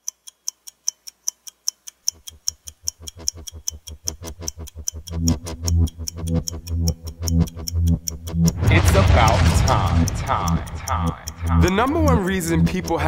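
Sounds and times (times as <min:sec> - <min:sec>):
stopwatch ticking: 0:00.0 - 0:13.0
pulsing bass music: 0:02.9 - 0:13.0.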